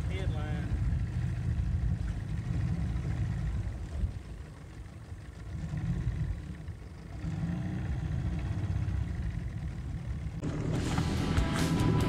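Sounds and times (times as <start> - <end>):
small outboard motor running: 0.0 - 12.0.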